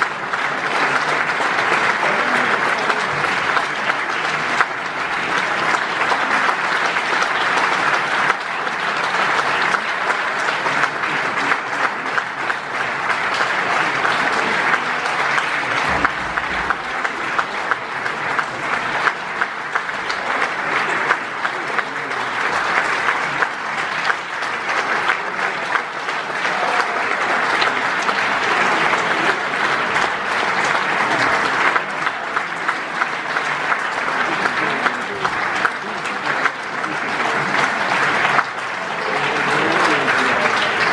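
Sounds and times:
audience applauding: 0.0s - 40.9s.

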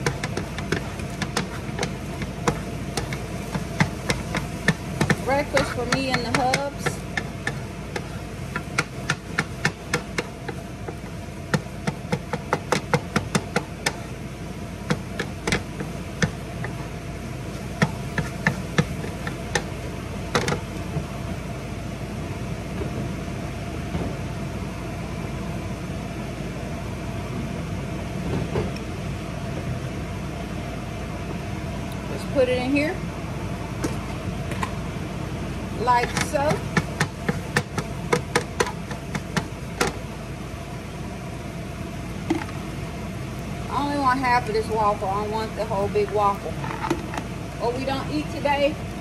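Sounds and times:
spatula tapping a griddle pan: 0.0s - 14.1s, 14.8s - 16.8s, 17.7s - 20.6s, 36.0s - 40.0s
vent fan hum: 0.0s - 49.0s.

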